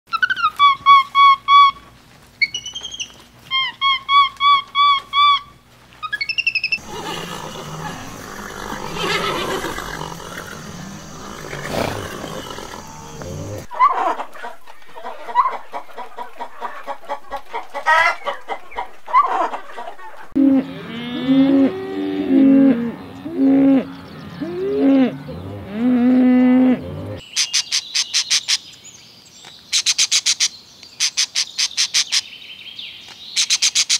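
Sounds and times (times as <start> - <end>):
lower pitch-bending animal calls: 6.0 - 14.1, 19.0 - 27.2.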